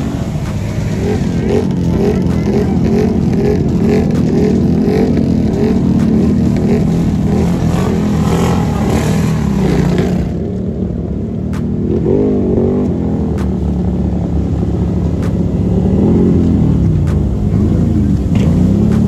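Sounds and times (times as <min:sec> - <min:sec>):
quad engine revving: 0:00.0 - 0:19.0.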